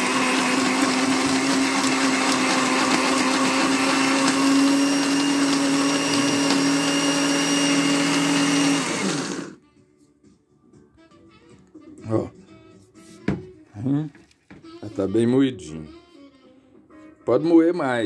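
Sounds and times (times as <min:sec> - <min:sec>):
blender motor grinding: 0:00.0 - 0:09.6
motor winding down: 0:03.1 - 0:09.6.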